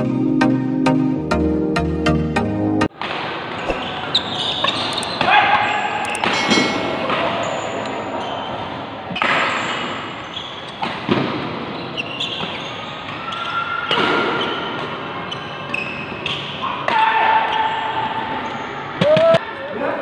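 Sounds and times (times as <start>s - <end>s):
shoe squeaks on court floor: 3.5s - 11.0s, 11.7s - 16.5s.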